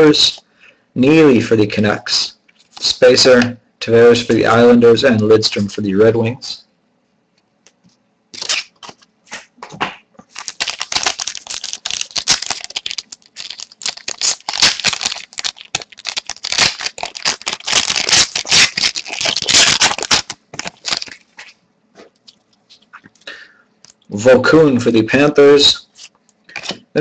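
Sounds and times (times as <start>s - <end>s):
foil wrapper tearing and crinkling: 8.4s - 9.0s, 10.3s - 21.6s.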